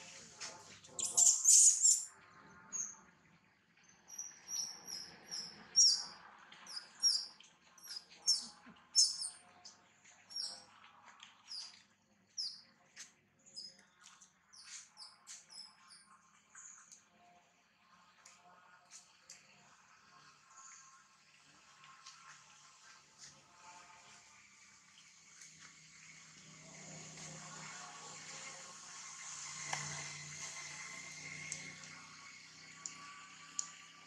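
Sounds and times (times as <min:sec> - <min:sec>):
high-pitched animal chirps: 0:01.0 - 0:02.1, 0:06.7 - 0:09.4.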